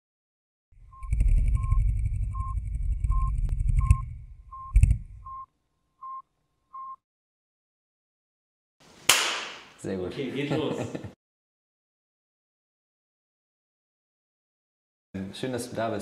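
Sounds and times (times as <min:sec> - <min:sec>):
short electronic beeps: 0:00.9 - 0:07.0.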